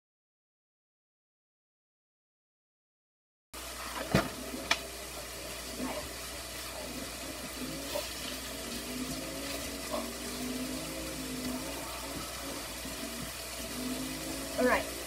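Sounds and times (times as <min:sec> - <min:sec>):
meat sizzling in a skillet: 0:03.6 - 0:15.0.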